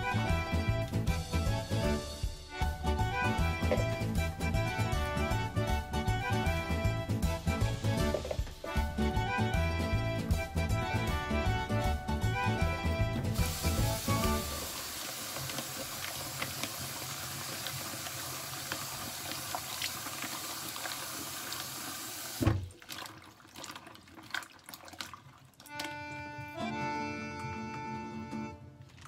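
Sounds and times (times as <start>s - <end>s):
background music with held notes: 0.0s - 14.8s, 25.7s - 29.0s
tap water running into bowl: 13.4s - 26.2s
thump: 22.4s - 22.7s.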